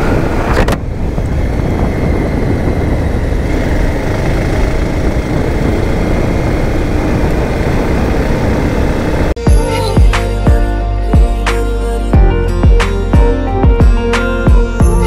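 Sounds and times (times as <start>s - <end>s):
motorcycle engine running: 0.0s - 9.4s
wind rushing over microphone: 0.0s - 9.4s.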